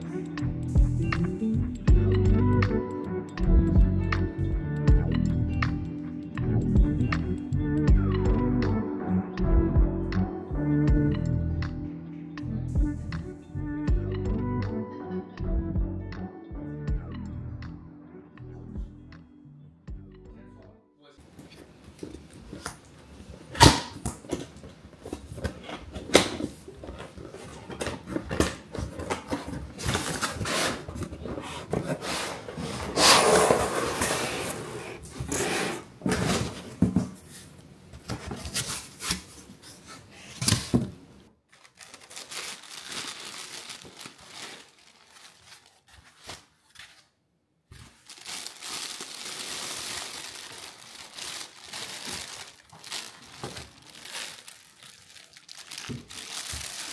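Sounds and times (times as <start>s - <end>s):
cardboard tearing: 25.2s - 36.6s, 41.5s - 47.0s, 47.7s - 56.9s
cardboard box scraping and knocking: 27.3s - 37.2s
plastic bag crinkling: 41.5s - 46.5s, 47.8s - 56.9s.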